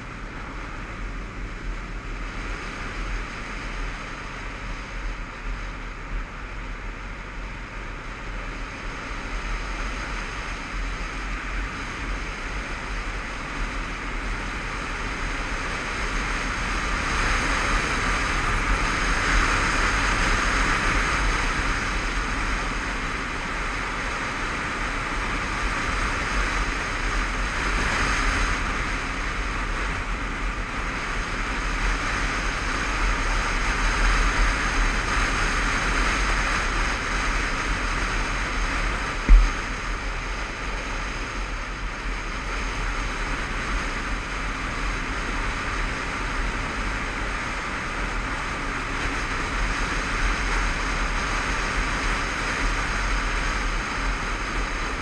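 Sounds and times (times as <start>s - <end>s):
wind rushing over microphone: 0.0s - 55.0s
short thump: 39.2s - 39.8s.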